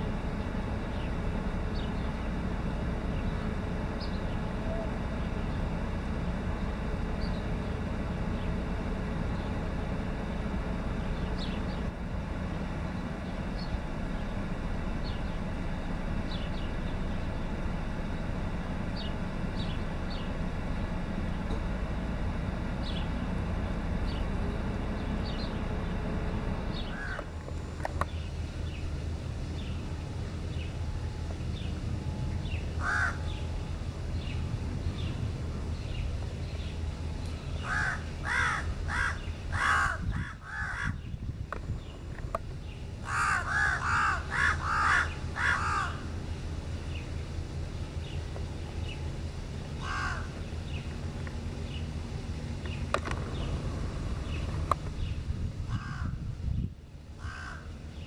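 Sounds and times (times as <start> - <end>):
steady low rumble: 0.0 - 58.0
crows cawing: 26.9 - 27.3, 32.8 - 33.4, 37.6 - 41.0, 43.0 - 46.2, 49.8 - 50.4, 55.7 - 56.2, 57.2 - 57.8.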